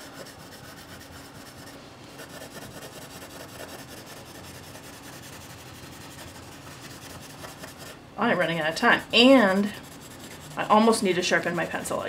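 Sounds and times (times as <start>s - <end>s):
pencil scratching on paper: 0.0s - 8.0s, 9.6s - 10.8s.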